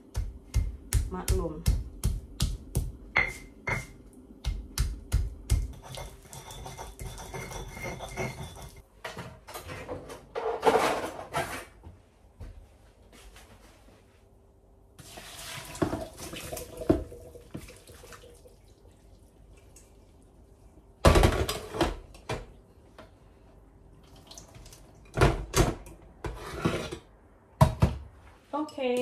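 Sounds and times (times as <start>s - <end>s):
pot and colander clattering: 5.7s - 11.5s
water pouring into sink: 15.0s - 19.9s.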